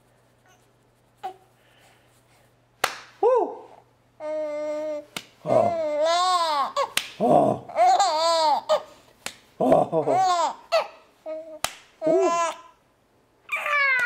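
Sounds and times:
hand claps: 0:02.8 - 0:03.2, 0:05.2 - 0:05.4, 0:07.0 - 0:07.2, 0:09.2 - 0:09.4, 0:11.6 - 0:12.0
baby laughing: 0:05.4 - 0:07.0, 0:07.7 - 0:08.9, 0:09.6 - 0:12.7.

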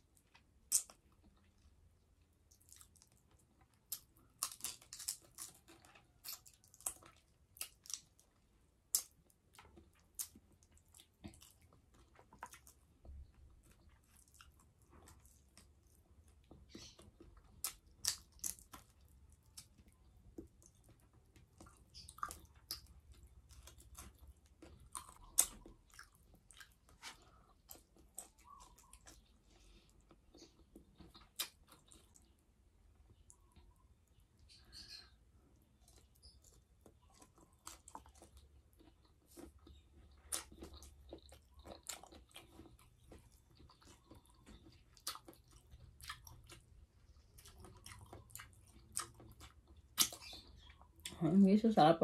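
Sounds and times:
crunchy chewing: 0:00.0 - 0:51.2
lip smacks: 0:47.4 - 0:51.2
wet mouth clicks: 0:50.0 - 0:50.4.

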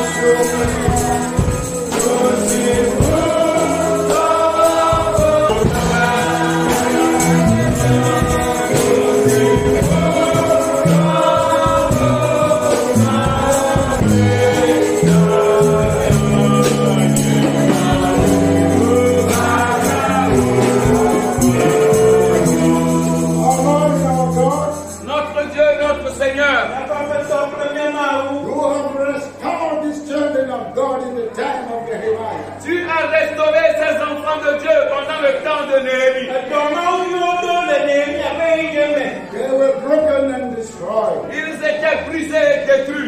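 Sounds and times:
band with bass and percussion: 0:00.0 - 0:26.1
choir singing gospel music: 0:00.0 - 0:43.0.

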